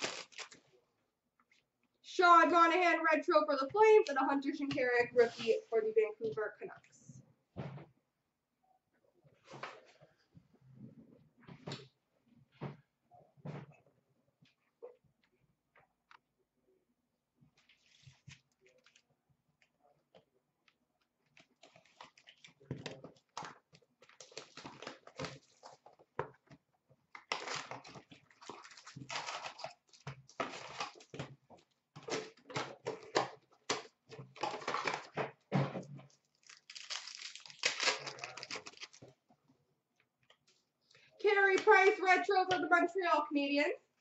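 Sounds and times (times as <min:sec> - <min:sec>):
wrappers crinkling and tearing: 0:00.0 - 0:00.6, 0:24.0 - 0:25.9, 0:27.2 - 0:31.2, 0:36.1 - 0:39.2.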